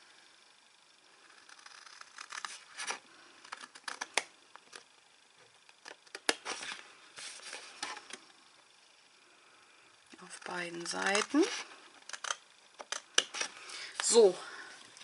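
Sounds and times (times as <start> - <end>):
scissors snipping cardstock: 1.6 - 4.8, 5.8 - 6.8, 10.2 - 13.5.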